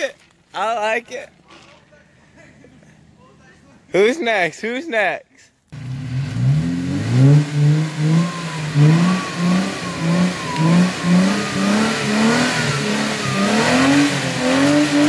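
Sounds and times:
car engine revving: 0:05.7 - 0:15.0.

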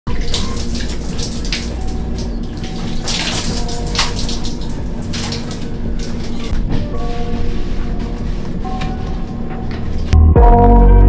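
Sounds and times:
water splashing and pouring: 0:00.1 - 0:06.6.

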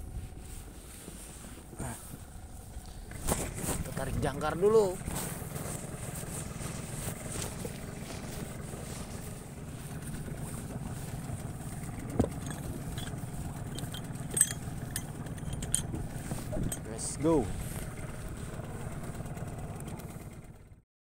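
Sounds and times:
boat engine idling: 0:00.0 - 0:20.8
anchor hauled up by hand: 0:02.7 - 0:04.2, 0:04.9 - 0:20.1.

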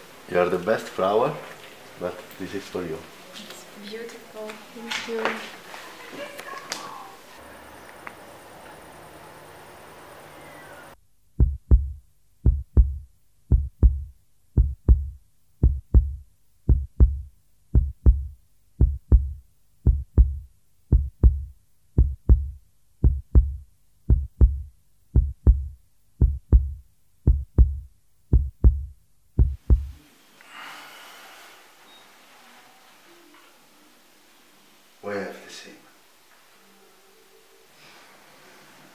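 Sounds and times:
heartbeat thumps: 0:11.4 - 0:30.0.

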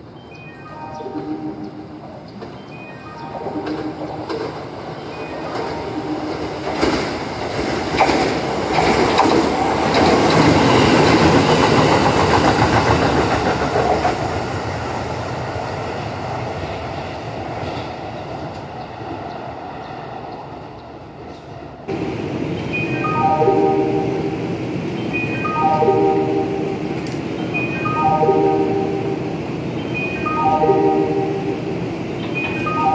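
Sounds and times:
electric train passing: 0:00.0 - 0:32.9
train wheels clattering over rail joints: 0:06.4 - 0:14.4.

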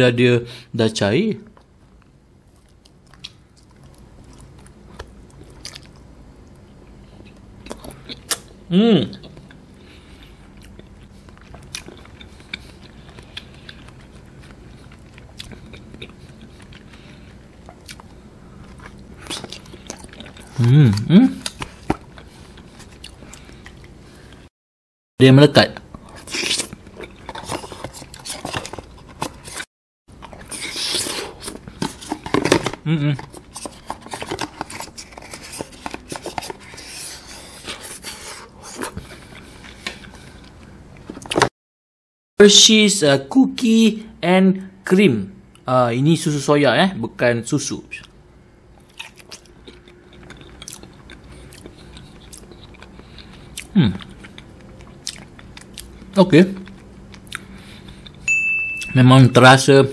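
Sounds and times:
person chewing jelly: 0:01.5 - 0:24.5, 0:25.8 - 0:41.5, 0:48.0 - 0:58.3
wooden spoon scraping jelly: 0:30.5 - 0:39.1.

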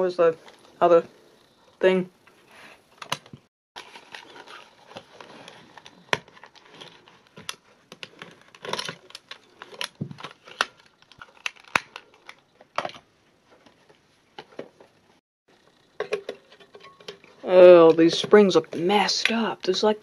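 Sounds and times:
plastic clicks and rattling: 0:15.9 - 0:17.4.

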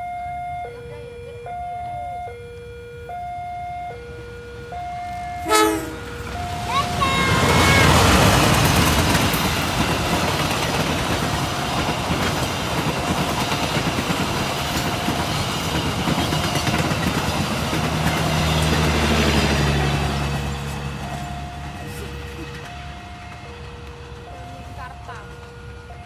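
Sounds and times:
level crossing warning tone: 0:00.0 - 0:09.8, 0:12.8 - 0:26.0
train passing: 0:03.2 - 0:26.0
wheels clicking over rail joints: 0:06.2 - 0:26.0.

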